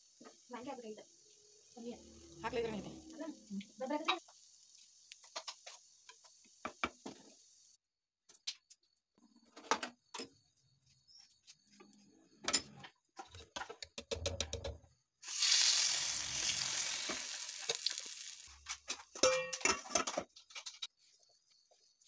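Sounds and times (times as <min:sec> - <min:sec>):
batter sizzling in hot pan: 0:00.0 - 0:07.8, 0:15.2 - 0:18.8.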